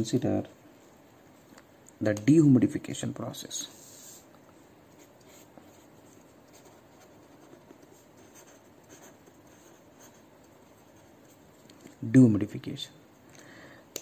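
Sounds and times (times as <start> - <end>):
pen scratching on paper: 5.0 - 10.2.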